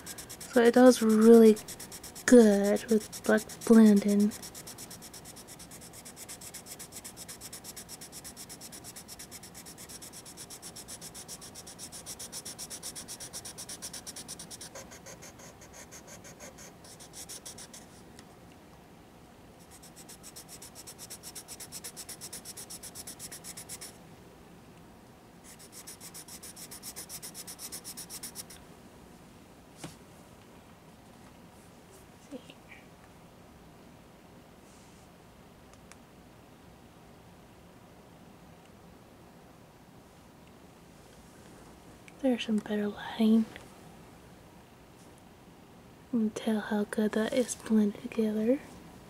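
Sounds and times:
pencil scratching on paper: 0:00.0 - 0:18.0, 0:19.6 - 0:23.9, 0:25.5 - 0:28.6.

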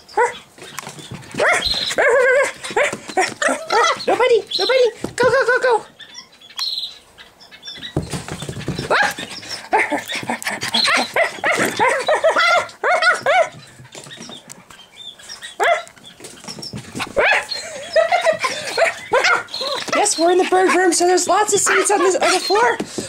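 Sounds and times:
puppy barking and yapping: 0:00.1 - 0:04.2, 0:08.4 - 0:14.4, 0:15.2 - 0:23.0.

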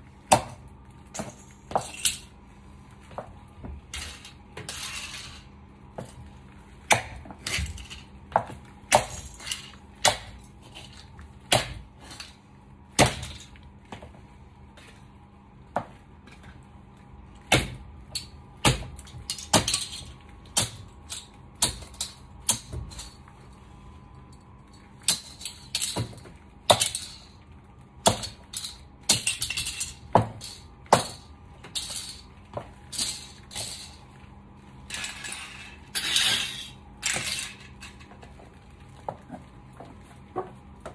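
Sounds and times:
heels clicking on tile floor: 0:37.0 - 0:40.9.

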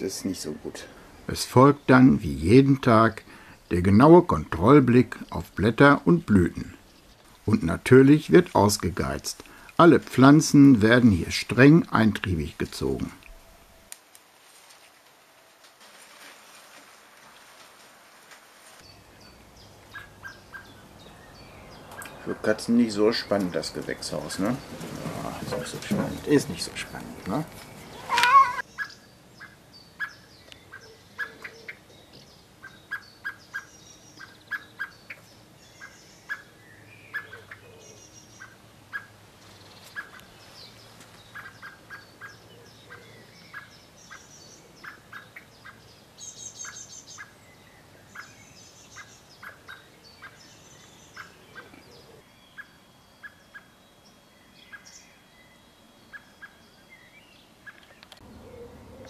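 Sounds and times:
bird call notes: 0:18.8 - 0:39.2, 0:39.8 - 0:59.0
bird twittering trills: 0:18.8 - 0:59.0.

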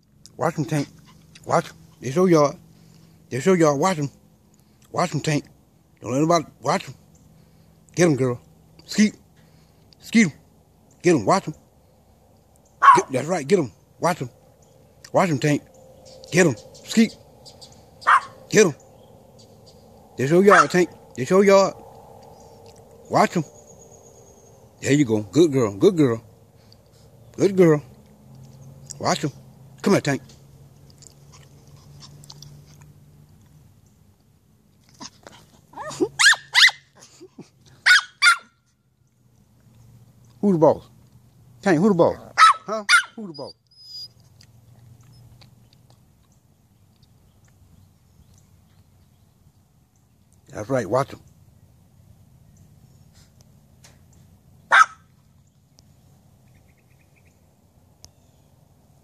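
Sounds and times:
small dog yapping: 0:12.8 - 0:13.2, 0:17.6 - 0:18.5, 0:20.5 - 0:20.9, 0:34.9 - 0:37.0, 0:37.8 - 0:38.7, 0:42.2 - 0:44.2, 0:54.7 - 0:55.1.

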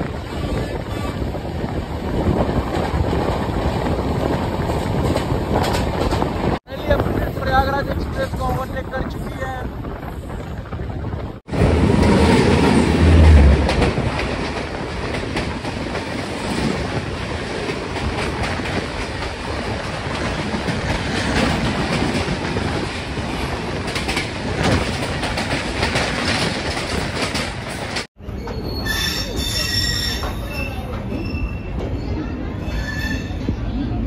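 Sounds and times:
locomotive rumbling past: 0:09.7 - 0:34.0.

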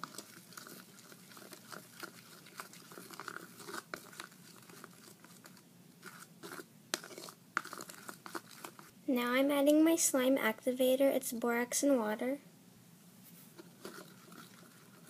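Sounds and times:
spoon stirring thick slime: 0:00.0 - 0:09.0, 0:13.4 - 0:15.0.

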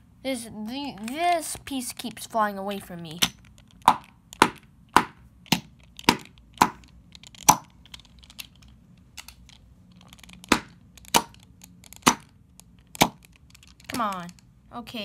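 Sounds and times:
screwdriver knocking plastic bricks: 0:03.2 - 0:08.3, 0:10.0 - 0:14.4.

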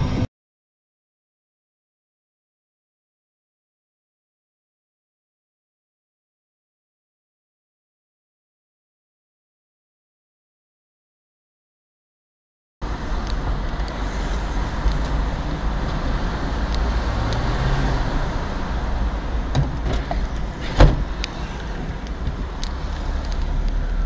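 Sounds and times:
car engine and road noise: 0:00.0 - 0:00.3, 0:12.8 - 0:24.0.

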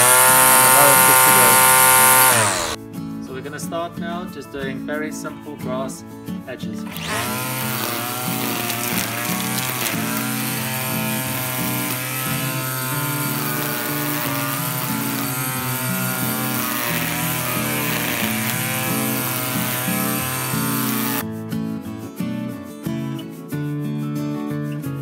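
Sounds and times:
strimmer cutting grass: 0:00.0 - 0:02.8, 0:06.8 - 0:21.2
background music: 0:01.8 - 0:25.0.

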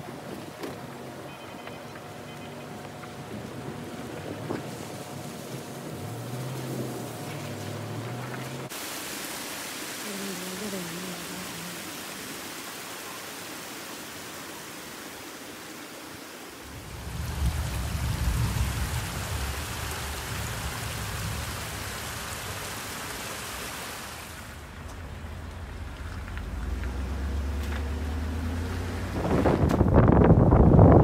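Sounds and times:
runoff water rushing over rocks: 0:02.0 - 0:31.0
rain hiss: 0:02.1 - 0:29.5
wind rumble on microphone: 0:02.9 - 0:08.3, 0:16.7 - 0:22.8, 0:24.7 - 0:31.0.

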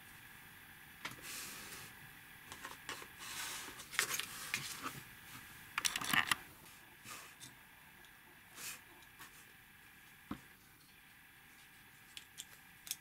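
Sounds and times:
plastic pieces clicking and rustling: 0:05.8 - 0:06.4.

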